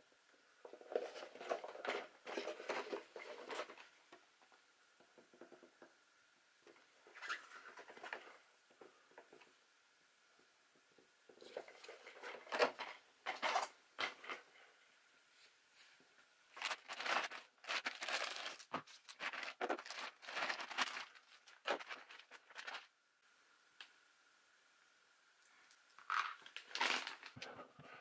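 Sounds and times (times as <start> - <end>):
handling small plastic parts: 16.5 - 22.9.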